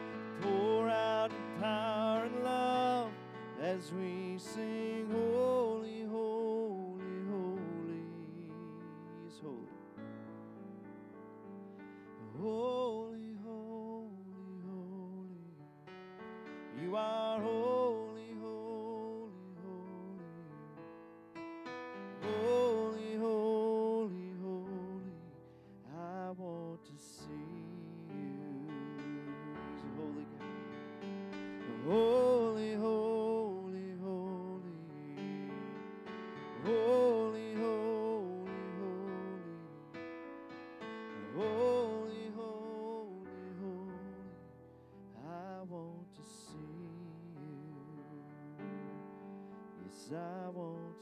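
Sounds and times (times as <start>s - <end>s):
electric keyboard chords: 0.0s - 9.0s, 28.0s - 44.9s
man singing with vibrato: 0.0s - 9.8s, 12.2s - 15.6s, 16.7s - 20.6s, 22.2s - 30.6s, 31.6s - 39.8s, 41.1s - 44.4s, 45.2s - 48.5s, 49.8s - 51.0s.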